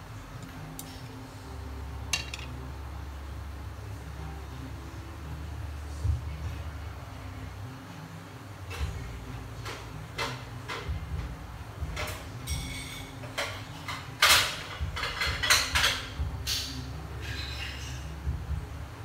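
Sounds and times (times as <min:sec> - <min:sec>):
low steady hum: 0:00.0 - 0:19.0
kitchen items knocking and clinking: 0:02.2 - 0:02.5.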